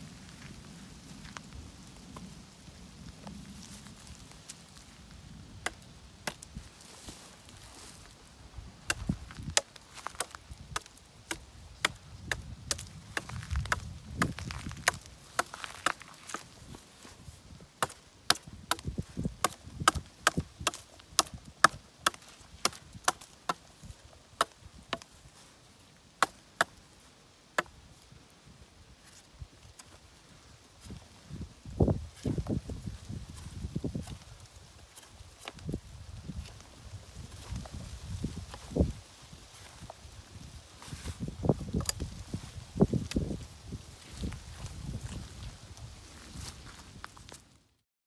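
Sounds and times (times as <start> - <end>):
knife chopping wood: 5.6 - 6.4, 8.9 - 16.5, 17.8 - 23.6, 24.4 - 25.1, 26.2 - 26.7.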